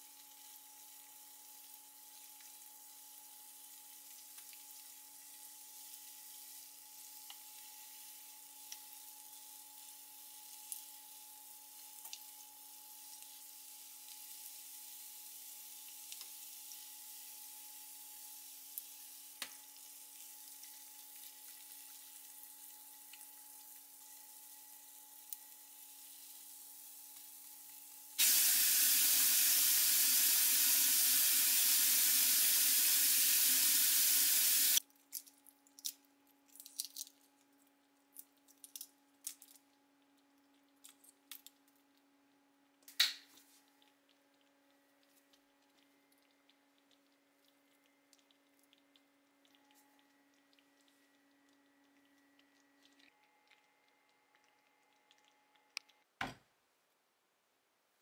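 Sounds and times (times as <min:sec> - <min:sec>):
oil sizzling: 0:13.0 - 0:34.8
loud rushing hiss: 0:28.2 - 0:34.8.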